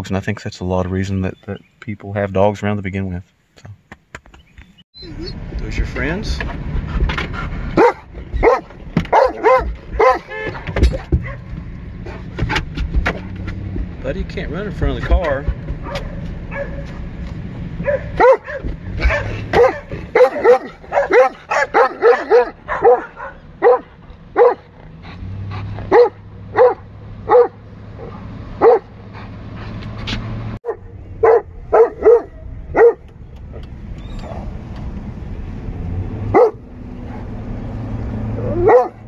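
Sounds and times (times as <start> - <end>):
car hum: 3.2 - 39.0
dog barking loudly: 7.7 - 11.5, 15.8 - 16.9, 17.8 - 24.8, 25.6 - 29.0, 30.7 - 33.0, 36.3 - 37.3, 38.4 - 39.0.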